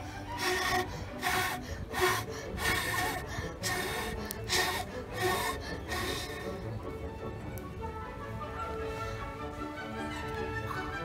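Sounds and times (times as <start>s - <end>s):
breathy blasts through blowpipe: 0.0s - 6.6s.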